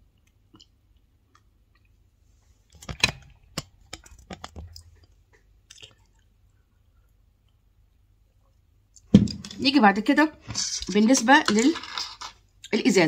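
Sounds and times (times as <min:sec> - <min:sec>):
objects clicking and knocking: 0:02.7 - 0:05.9, 0:10.5 - 0:12.4.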